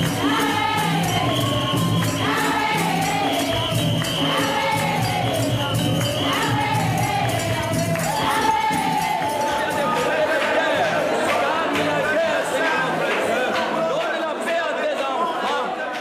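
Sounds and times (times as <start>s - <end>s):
tambourine shaking: 0.0s - 12.8s
congregation singing gospel song: 0.0s - 16.0s.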